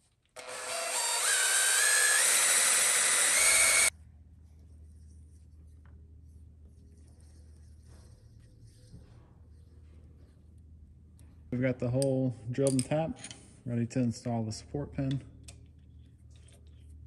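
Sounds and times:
drill bit squealing into metal: 0.4 - 3.9.

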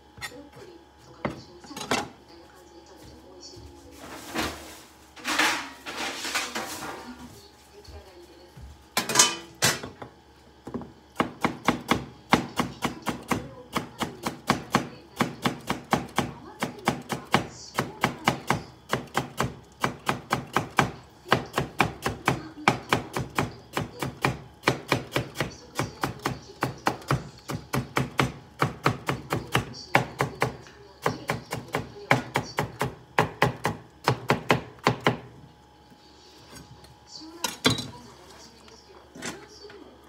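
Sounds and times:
metal tray clattering: 4.0 - 7.2, 9.0 - 9.8
knife chopping on cutting board: 10.7 - 35.3.

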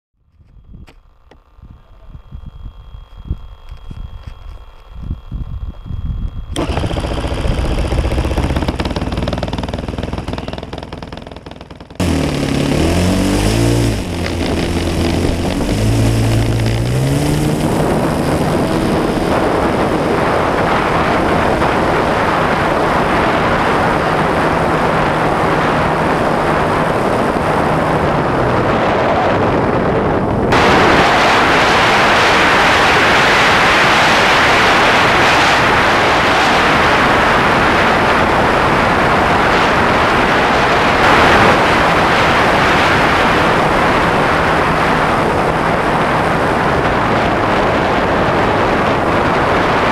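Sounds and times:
engine and wind rush in flight: 0.2 - 49.9
model aircraft engine running: 0.5 - 49.9
electric starter spinning: 5.0 - 28.8.

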